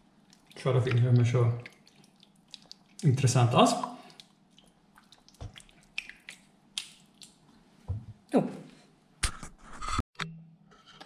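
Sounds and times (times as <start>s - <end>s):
wooden spoon stirring thick sauce: 0.0s - 6.4s.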